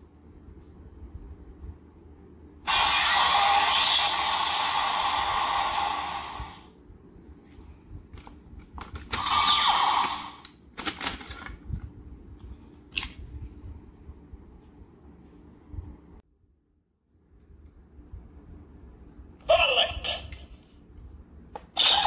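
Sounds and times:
toy gun electronic sound effect: 2.7 - 6.5, 9.1 - 10.4, 21.8 - 22.0.

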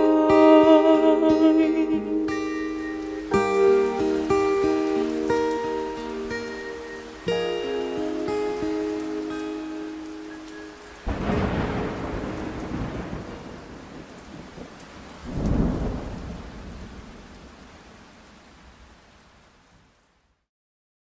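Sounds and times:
steady rain: 0.0 - 20.5
thunder rolling: 11.0 - 17.5.

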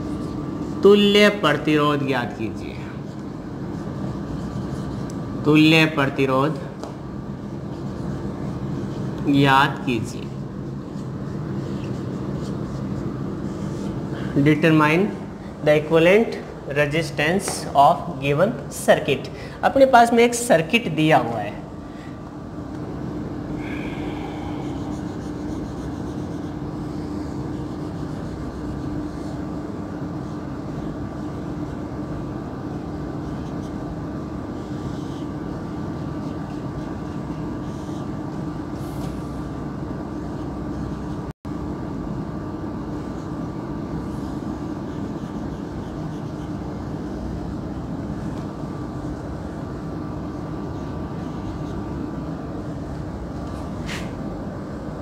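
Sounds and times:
room hum and hiss: 0.0 - 55.0
marker squeaking on whiteboard: 10.2 - 14.1, 36.1 - 39.1, 44.7 - 47.1.

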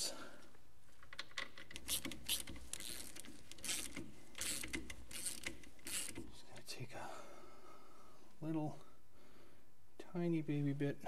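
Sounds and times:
hand ratchet clicking: 1.2 - 6.3.

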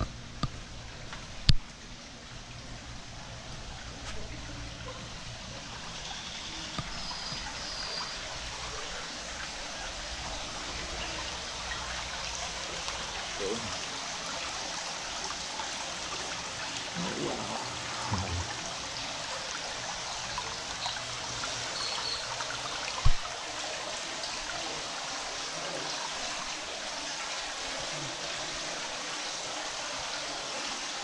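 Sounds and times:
running water hiss: 0.4 - 31.0
faint voices: 3.2 - 14.6, 15.3 - 19.6.

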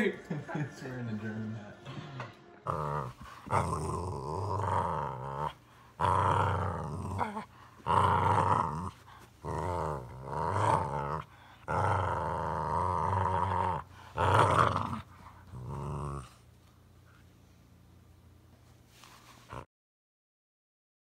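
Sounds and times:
dog growling: 2.6 - 16.5, 19.5 - 19.7.

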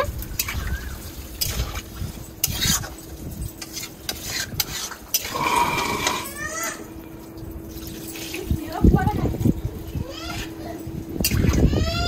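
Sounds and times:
metal ladle scraping metal pan: 4.2 - 6.8.

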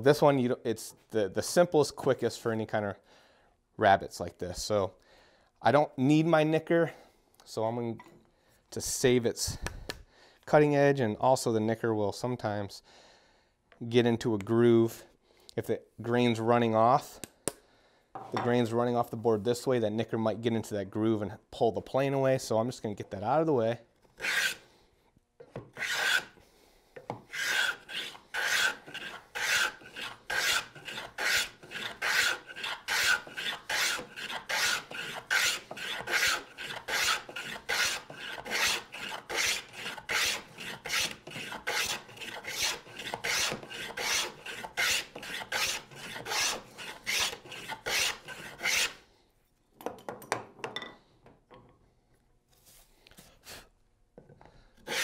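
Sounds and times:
wooden plane rasping on board: 24.2 - 24.6, 25.8 - 26.4, 27.0 - 49.0
faint handling sounds: 52.1 - 53.6.

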